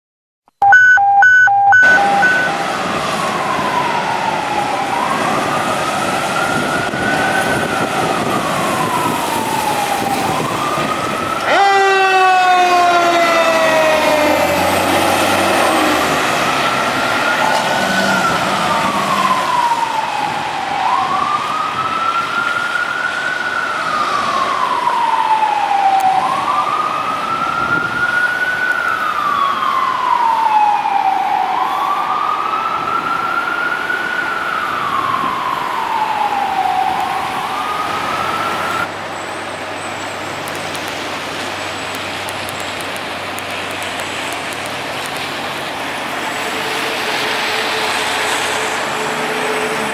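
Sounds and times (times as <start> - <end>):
mechanical siren winding down: 0.6 - 22.3
electronic siren wailing: 0.6 - 38.9
fire truck horn blasts: 11.4 - 14.4.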